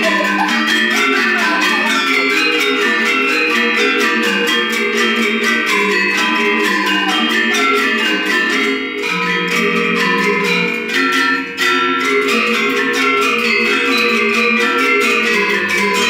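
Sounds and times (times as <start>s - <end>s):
metallophones playing fast figuration: 0.0s - 16.0s.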